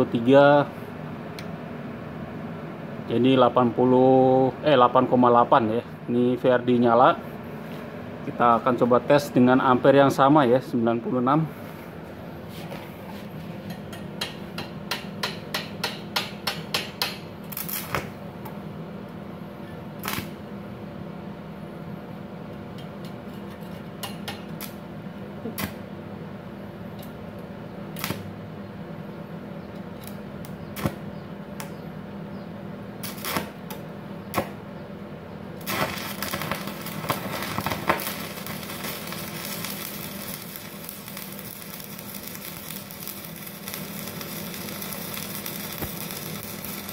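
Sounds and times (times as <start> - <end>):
welding arc crackling and sizzling: 12.5 - 18.6, 19.9 - 20.5, 23.5 - 24.8, 25.4 - 25.8, 26.9 - 28.3, 29.9 - 31.8, 33.0 - 34.6, 35.5 - 46.9.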